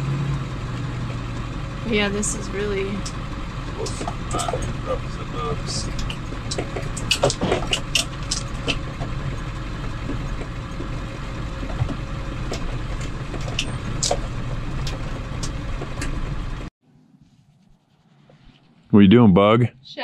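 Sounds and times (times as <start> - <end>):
bus engine and road rumble: 0.0 - 16.7, 17.8 - 20.0
sharp rattles and clicks: 0.7 - 16.7.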